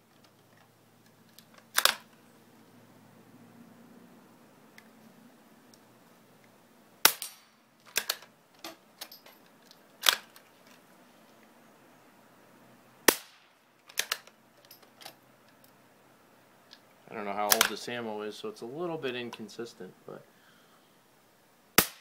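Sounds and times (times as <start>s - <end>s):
rifle bolt clicks and knocks: 1.3s - 2.1s, 7.8s - 10.8s, 13.8s - 15.7s, 17.5s - 17.8s
rifle shots: 7.0s - 8.2s, 13.0s - 13.5s, 21.8s - 22.0s.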